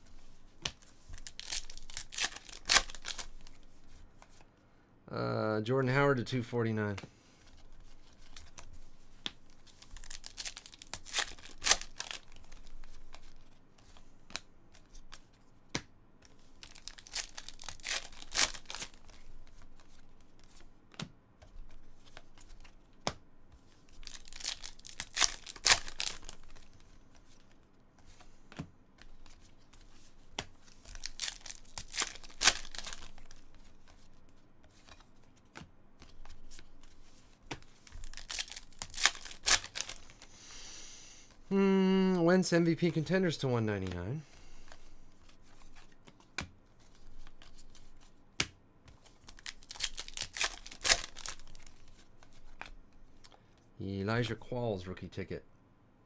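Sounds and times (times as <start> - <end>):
cards sliding and scraping: 25.2 - 41.4.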